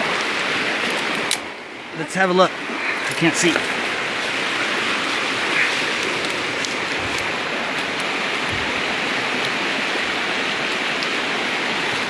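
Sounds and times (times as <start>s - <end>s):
rain on leaves: 0.0s - 12.0s
raindrop ticks: 10.6s - 11.2s.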